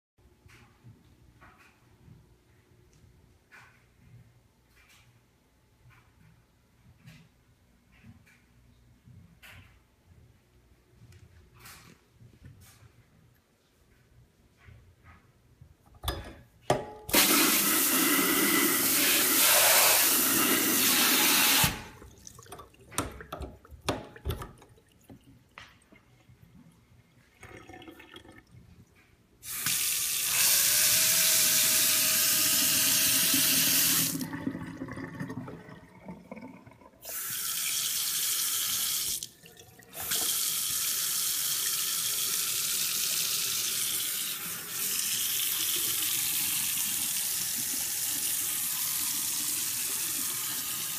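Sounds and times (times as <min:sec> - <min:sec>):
water running into steel sink: 0:17.1 - 0:25.2, 0:29.5 - 0:36.0, 0:36.6 - 0:50.9.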